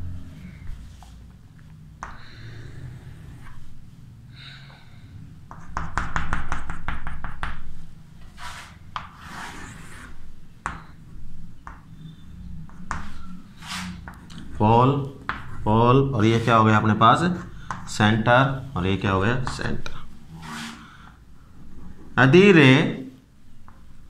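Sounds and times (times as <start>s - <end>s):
chalk tapping on a blackboard: 5.5s - 7.8s, 8.4s - 9.4s, 10.6s - 10.9s, 11.6s - 11.9s, 12.6s - 14.2s, 15.2s - 15.5s, 17.6s - 17.9s
chalk scraping on a blackboard: 8.2s - 10.2s, 12.7s - 14.2s, 16.2s - 16.8s, 20.3s - 21.0s.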